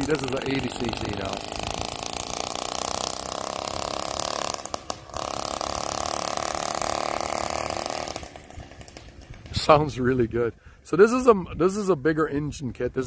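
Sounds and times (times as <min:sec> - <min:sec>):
two-stroke motor engine running: 0:00.0 - 0:10.0.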